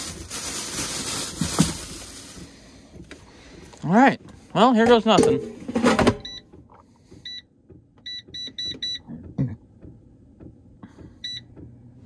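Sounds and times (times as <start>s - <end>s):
control panel beeps: 6.2s - 6.5s, 7.2s - 9.1s, 11.2s - 11.5s.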